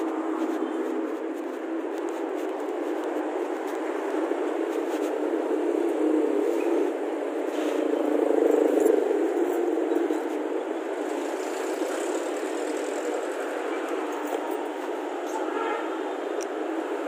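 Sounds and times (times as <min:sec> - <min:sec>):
road traffic passing: 0:00.0 - 0:17.0.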